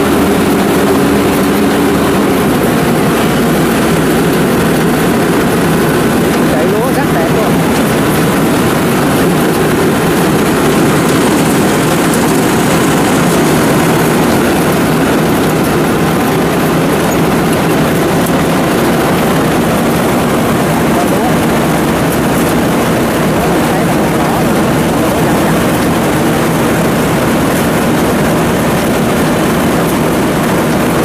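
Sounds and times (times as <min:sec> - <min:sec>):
combine harvester droning: 0:00.0 - 0:31.0.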